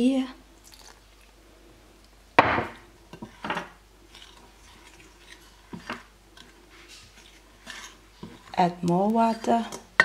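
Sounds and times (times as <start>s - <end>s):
spoon scraping glass bowl: 3.1s - 10.0s.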